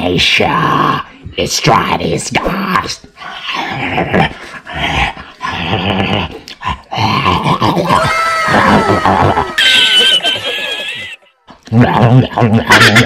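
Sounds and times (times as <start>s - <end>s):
man growling and snarling: 2.6s - 9.6s.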